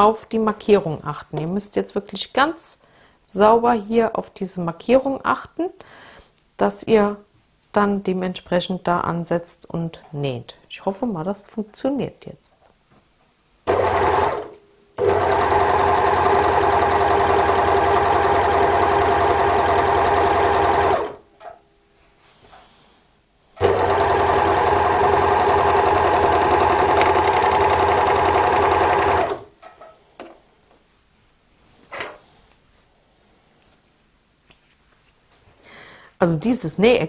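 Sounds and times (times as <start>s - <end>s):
overlock sewing machine running: 13.7s - 21.2s, 23.6s - 29.5s.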